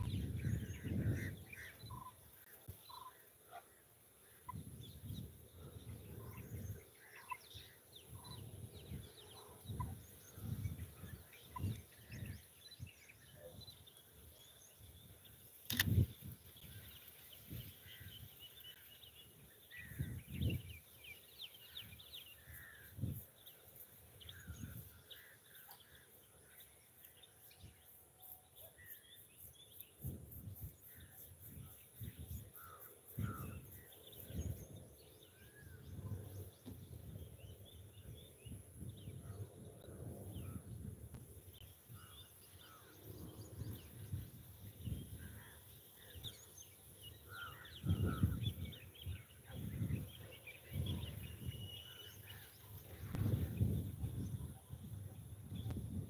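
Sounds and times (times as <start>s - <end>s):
birds chirping: 0.0s - 56.0s
sharp click: 15.6s - 16.2s.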